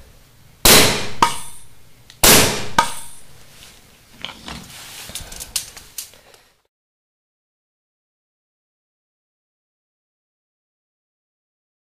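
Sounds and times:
paintball gun shot with air rush: 0.7 - 1.6, 2.2 - 3.2.

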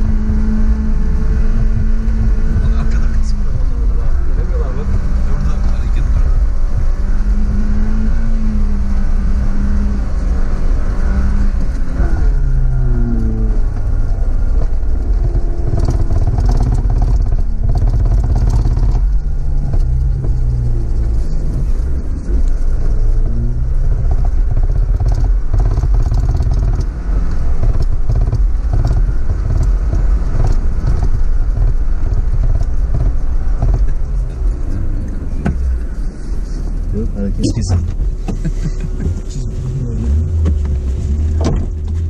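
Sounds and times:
suv engine revving under load: 0.0 - 42.0
tyres crunching on snow: 12.7 - 42.0.

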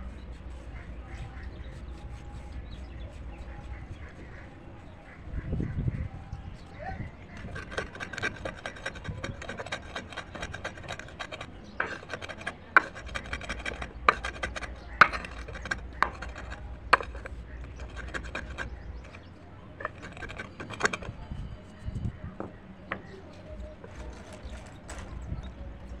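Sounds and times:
stone grinding crunch: 7.2 - 21.8, 22.9 - 25.3.

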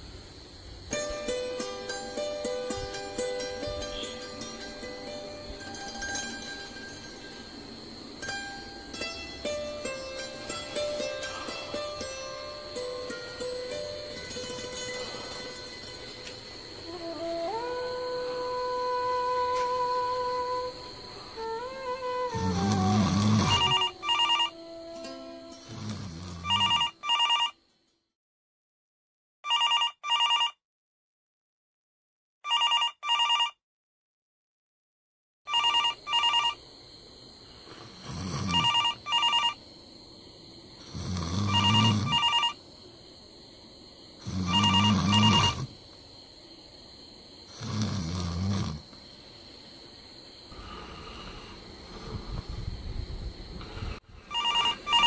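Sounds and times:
telephone double ring: 23.6 - 24.5, 26.4 - 27.6, 29.5 - 30.6, 32.5 - 33.6, 35.5 - 36.6, 38.4 - 39.6, 41.3 - 42.6, 44.5 - 45.7, 54.3 - 55.0.

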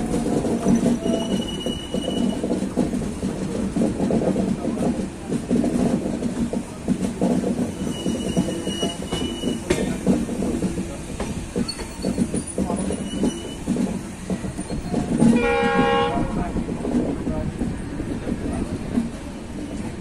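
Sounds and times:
rail-joint clatter: 0.0 - 20.0
train wheel rumble: 0.0 - 20.0
high-pitched wheel squeals: 0.7 - 2.5, 11.6 - 13.7
locomotive horn: 15.3 - 16.4.

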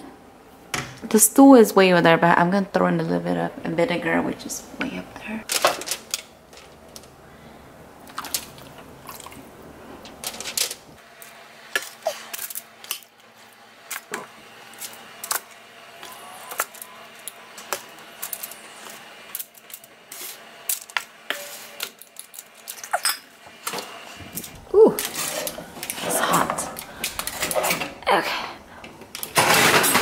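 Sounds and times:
aluminium foil crinkling: 5.5 - 7.1, 10.0 - 10.9, 16.4 - 20.9, 21.8 - 23.1.

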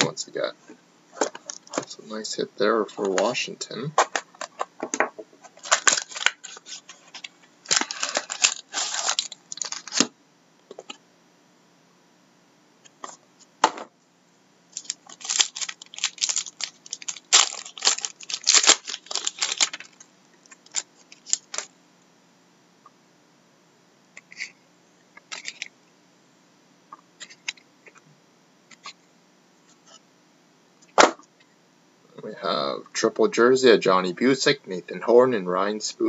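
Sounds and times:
card pack wrapper crinkling: 5.5 - 10.1, 14.7 - 21.7, 25.3 - 25.7.

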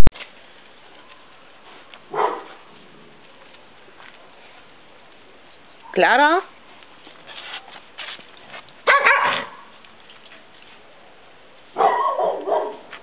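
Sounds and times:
dog barking: 2.1 - 2.6, 8.8 - 9.7, 11.8 - 12.9.

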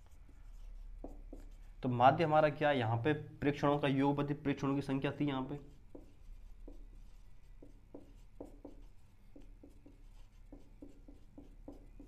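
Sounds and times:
handwriting strokes: 0.0 - 1.7, 5.6 - 12.0.

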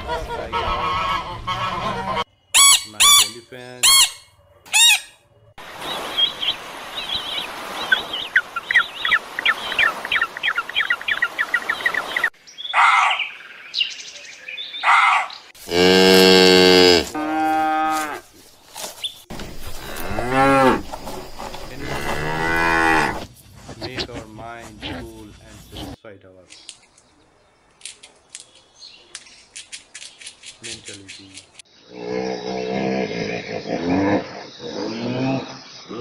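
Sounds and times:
high bird chirps: 2.3 - 5.2, 5.8 - 15.5
large animal bellowing: 31.9 - 36.0.

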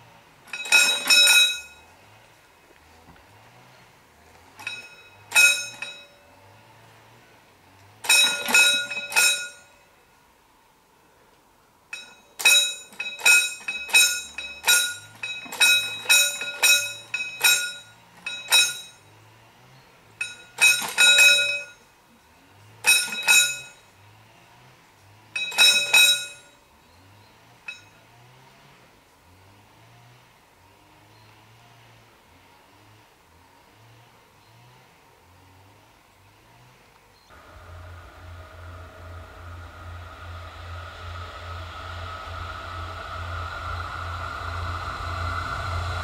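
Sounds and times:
level crossing warning bell: 4.6 - 6.3, 8.1 - 9.8, 11.9 - 19.0, 22.8 - 23.8.

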